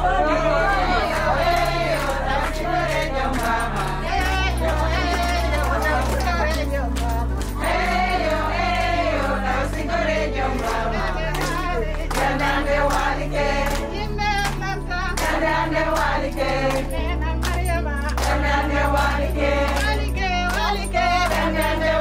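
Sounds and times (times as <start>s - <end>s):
sustained bass notes: 0.0s - 16.0s
voices singing: 0.0s - 22.0s.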